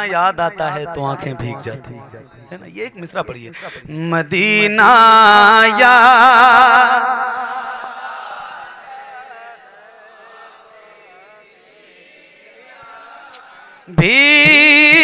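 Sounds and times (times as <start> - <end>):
man singing with vibrato: 3.5 - 7.9, 13.8 - 15.0
voices singing along: 4.8 - 15.0.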